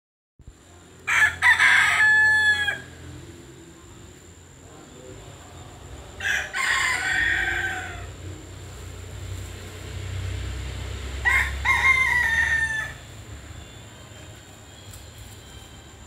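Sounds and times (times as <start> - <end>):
rooster crowing: 1.0 - 3.0, 6.2 - 8.2, 11.1 - 13.2.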